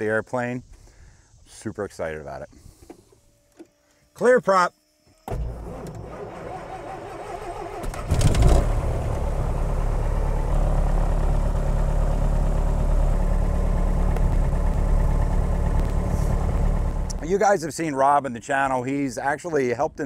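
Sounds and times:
aircraft engine starting: 5.3s - 17.3s.

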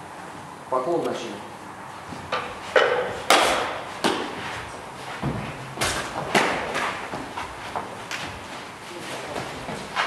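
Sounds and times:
footwork: 2.0s - 10.0s
thumps and slaps of sparring: 2.8s - 4.5s, 5.2s - 8.3s.

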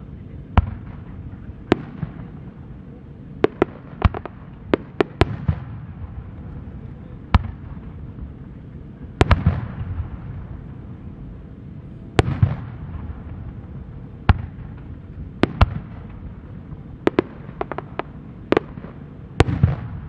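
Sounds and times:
steady low rumble: 0.0s - 20.0s
firework shells bursting: 3.4s - 5.7s, 17.0s - 20.0s.

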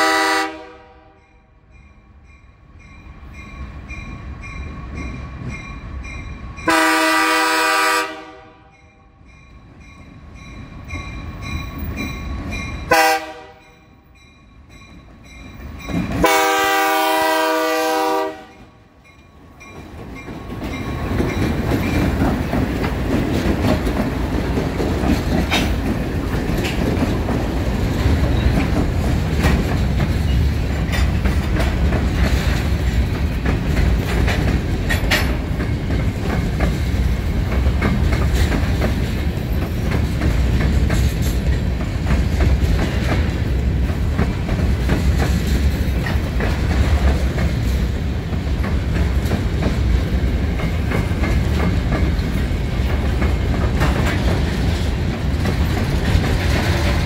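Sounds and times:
locomotive air horn blasts: 0.0s - 1.2s, 6.7s - 8.8s, 12.9s - 13.8s, 16.2s - 18.7s
train rumbling past: 0.0s - 57.0s
crossing bell ringing: 1.0s - 7.2s, 8.6s - 16.7s, 18.4s - 22.2s
wheels clattering over rail joints: 19.6s - 57.0s.

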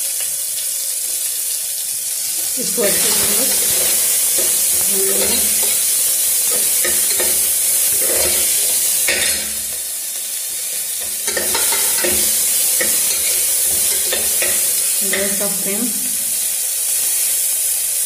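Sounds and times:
onions sizzling in hot oil: 0.0s - 18.0s
metal spoon scraping a pot: 2.8s - 15.4s.

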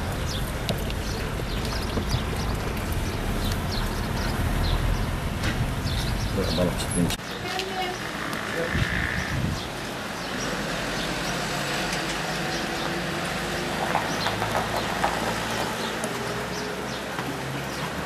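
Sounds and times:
tyres rolling over gravel: 0.0s - 4.8s.

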